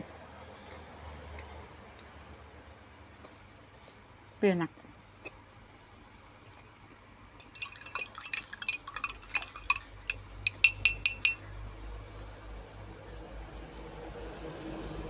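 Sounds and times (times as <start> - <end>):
spoon clinking in glass jar: 7.4 - 11.5.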